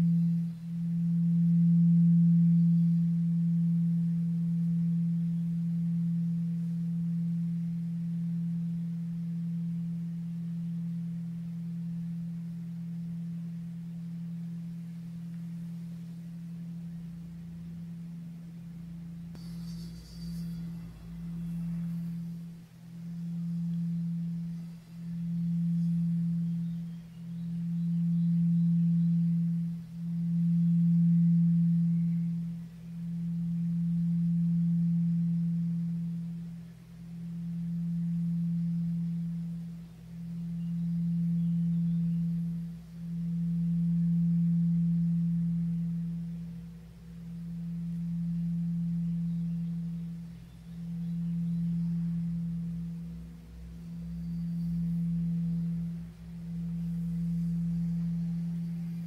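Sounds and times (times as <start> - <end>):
singing bowl low steady tone: 0.0 - 59.0.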